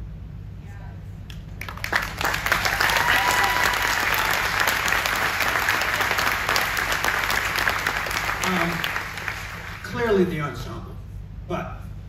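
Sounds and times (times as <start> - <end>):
audience applauding: 1.6 - 10.4.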